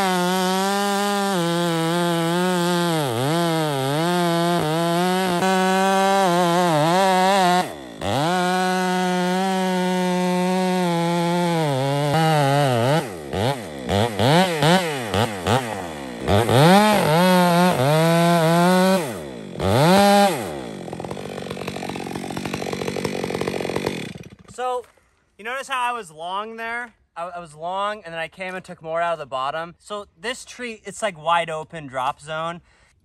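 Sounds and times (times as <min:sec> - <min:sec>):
chainsaw revving: 0:00.0 - 0:24.7
chainsaw cutting wood: 0:00.0 - 0:25.0.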